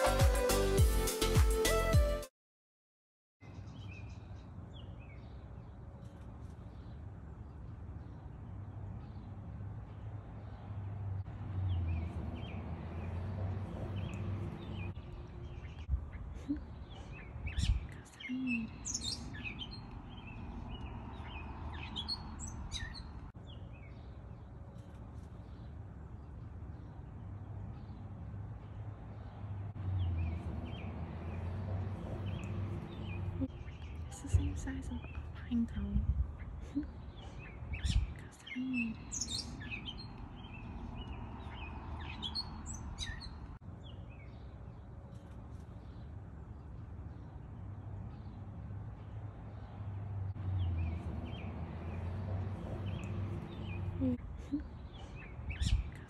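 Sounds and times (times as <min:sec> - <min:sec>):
small birds chirping: 0:03.4 - 0:56.0
steady low rumble: 0:29.7 - 0:38.3.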